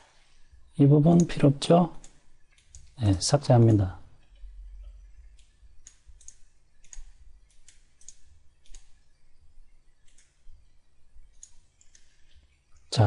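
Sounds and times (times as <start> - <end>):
computer mouse clicks: 2.0 - 3.0, 4.2 - 9.2, 9.9 - 10.6, 11.2 - 12.9.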